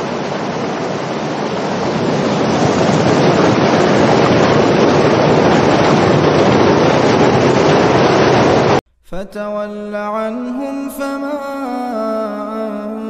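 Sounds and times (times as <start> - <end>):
floodwater gushing from a pipe: 0.0 - 8.8.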